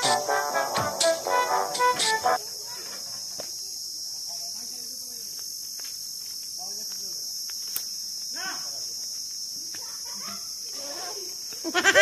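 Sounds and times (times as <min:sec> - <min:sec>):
background music: 0:00.0 - 0:02.4
crickets or cicadas droning: 0:00.0 - 0:12.0.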